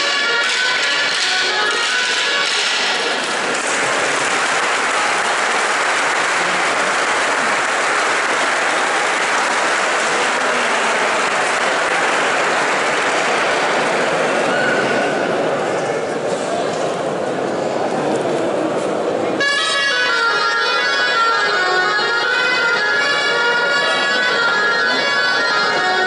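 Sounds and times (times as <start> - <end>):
audience applauding: 0.5 - 14.5.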